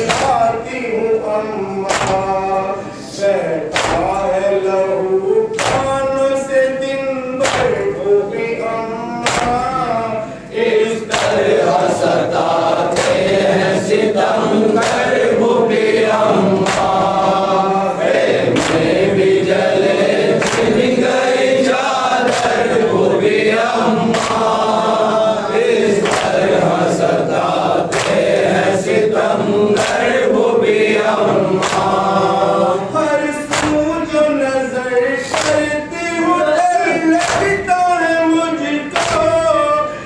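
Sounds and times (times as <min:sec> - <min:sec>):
men chanting a lament in unison: 0:00.0 - 0:40.0
hands slapping chests: 0:01.9 - 0:02.3, 0:03.7 - 0:04.2, 0:05.6 - 0:06.0, 0:07.4 - 0:07.9, 0:09.2 - 0:09.7, 0:11.1 - 0:11.6, 0:16.6 - 0:17.2, 0:18.5 - 0:19.0, 0:20.4 - 0:20.9, 0:24.1 - 0:24.6, 0:26.0 - 0:26.6, 0:27.9 - 0:28.4, 0:31.6 - 0:32.1, 0:33.5 - 0:33.9, 0:37.2 - 0:37.6, 0:39.0 - 0:39.4.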